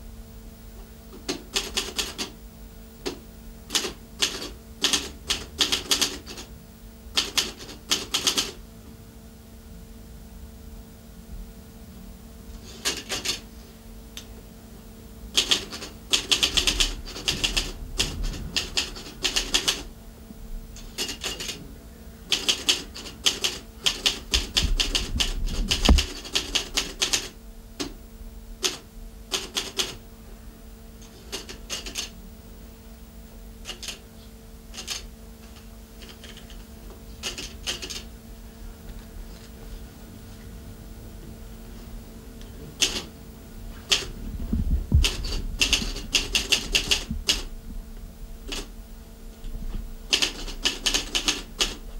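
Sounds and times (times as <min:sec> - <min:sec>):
faint steady hum: 0:00.0 - 0:51.9
typewriter keystrokes: 0:01.3 - 0:02.3, 0:03.1 - 0:06.5, 0:07.2 - 0:08.6, 0:12.7 - 0:13.4, 0:15.4 - 0:19.9, 0:21.0 - 0:21.6, 0:22.3 - 0:27.9, 0:28.6 - 0:30.0, 0:31.3 - 0:32.1, 0:33.6 - 0:34.0, 0:34.7 - 0:35.1, 0:36.0 - 0:36.6, 0:37.2 - 0:38.0, 0:42.8 - 0:43.1, 0:43.9 - 0:44.1, 0:45.0 - 0:47.5, 0:48.5 - 0:48.7, 0:50.1 - 0:51.8.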